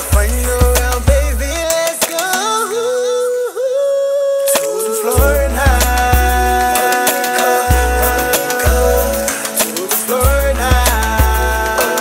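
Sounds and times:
background music with deep beat: 0.0s - 2.6s, 4.5s - 12.0s
held melody line: 4.5s - 12.0s.

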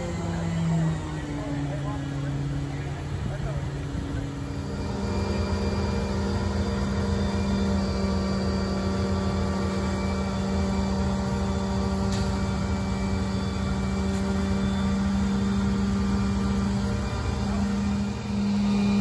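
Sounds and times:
diesel engine droning: 0.0s - 19.0s.

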